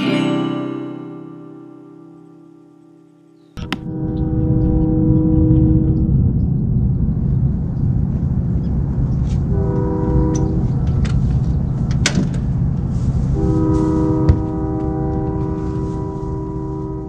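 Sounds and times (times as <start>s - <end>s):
ambient music with sustained chords: 0.0s - 17.0s
low rumble: 3.6s - 17.0s.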